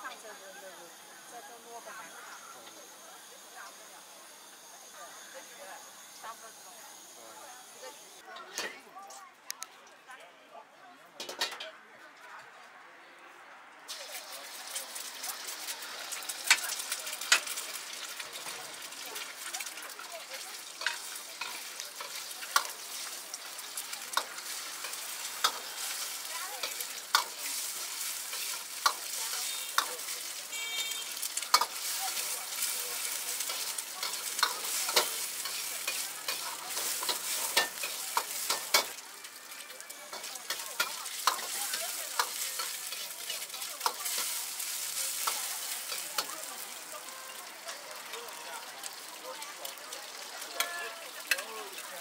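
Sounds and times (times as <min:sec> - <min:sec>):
food sizzling in hot oil: 0:00.0 - 0:08.3, 0:13.9 - 0:52.0
steel ladle scraping a wok: 0:20.6 - 0:46.7.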